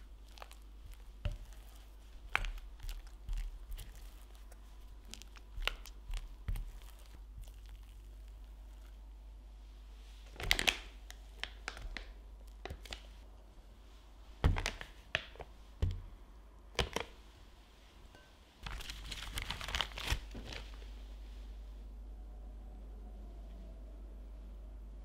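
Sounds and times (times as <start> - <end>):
plastic bag crinkling: 18.6 - 20.9.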